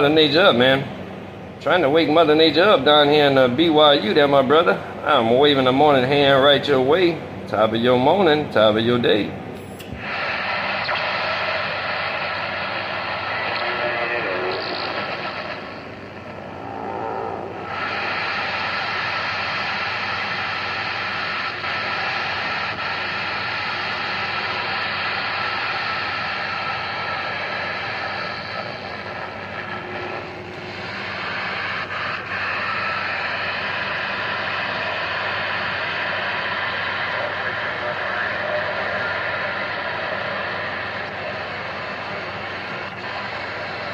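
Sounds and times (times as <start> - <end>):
radio static hiss: 0.0 - 1.0, 1.6 - 43.9.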